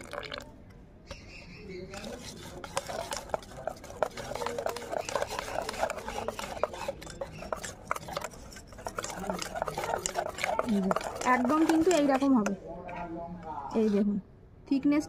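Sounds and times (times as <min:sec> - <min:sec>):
whisk beating batter in metal bowl: 0:01.9 - 0:12.6.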